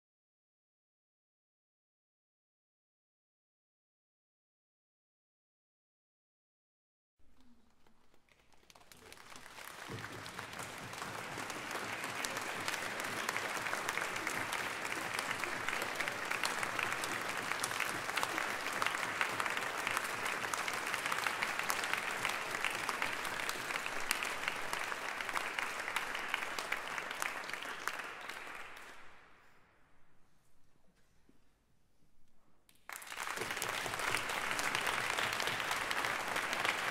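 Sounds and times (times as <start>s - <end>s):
audience applauding: 7.4s - 29.3s, 32.8s - 36.9s.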